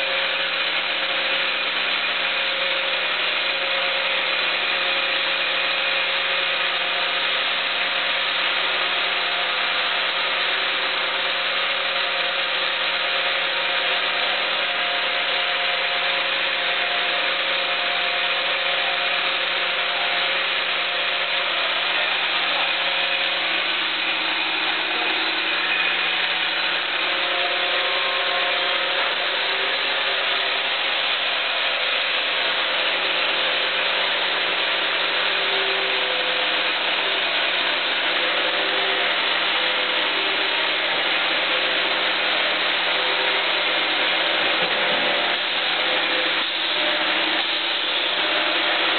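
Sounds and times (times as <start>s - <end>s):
band saw cutting log: 0.0s - 48.9s.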